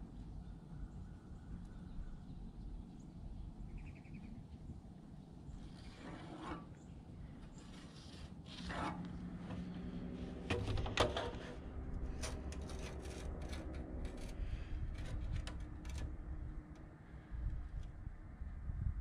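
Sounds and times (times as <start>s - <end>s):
light scraping and rubbing: 5.5s - 17.9s.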